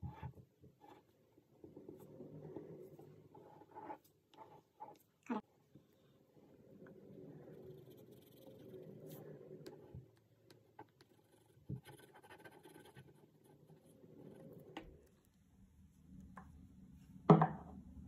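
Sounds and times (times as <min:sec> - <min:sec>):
marker scratching on paper: 0:11.0 - 0:14.4.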